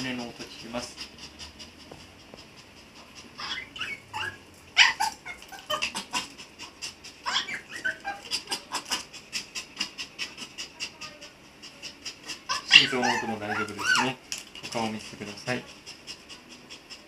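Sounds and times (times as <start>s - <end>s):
dog whimpering cries: 3.2s - 14.2s.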